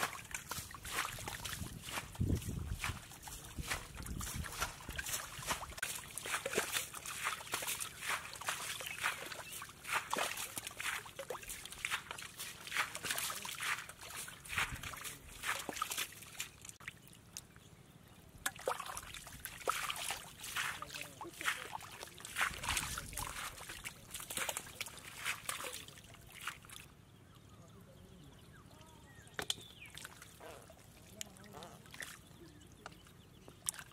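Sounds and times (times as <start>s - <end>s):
person wading through mud: 0.0s - 17.0s, 18.5s - 26.9s
splashing in muddy water: 0.0s - 17.5s, 18.4s - 26.9s, 29.1s - 33.9s.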